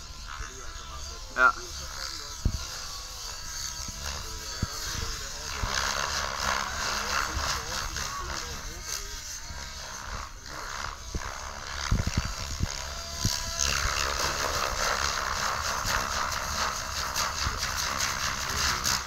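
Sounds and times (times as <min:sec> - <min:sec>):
model helicopter rotor whooshing: 0:00.0 - 0:19.0
wind rumbling on microphone: 0:11.1 - 0:14.7.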